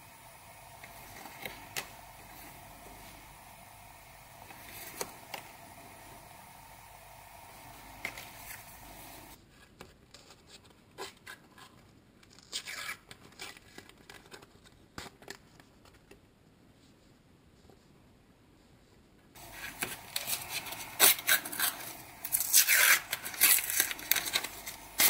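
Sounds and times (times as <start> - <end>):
foil packet ripping: 19.4 - 25.0
foil packet rustling and crinkling: 19.4 - 25.0
paper stickers clicking: 19.4 - 25.0.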